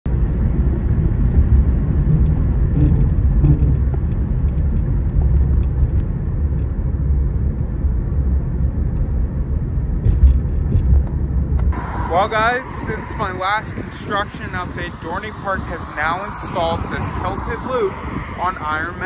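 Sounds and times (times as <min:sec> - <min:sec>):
car engine: 0:00.1 - 0:19.0.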